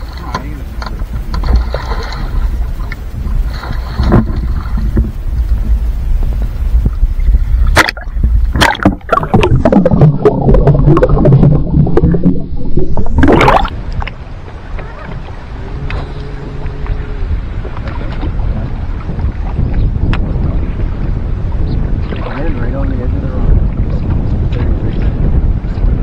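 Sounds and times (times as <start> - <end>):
water splash: 0.0 - 19.6
underwater bubbling and gurgling: 0.0 - 26.0
water sloshing against boat: 0.0 - 26.0.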